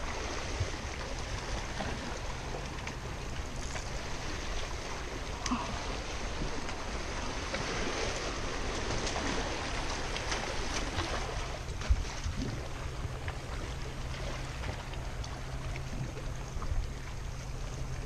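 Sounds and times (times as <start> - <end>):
sea waves washing among rocks: 0.0 - 18.0.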